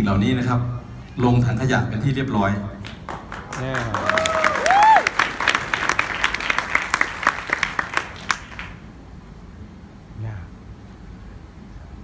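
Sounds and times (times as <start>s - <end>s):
audience applauding: 2.8s - 8.9s
cheering whoop: 3.4s - 6.2s.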